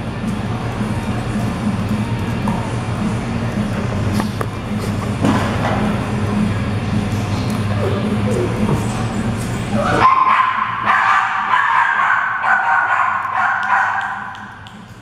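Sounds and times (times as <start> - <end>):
low steady drone: 0.0 - 10.9.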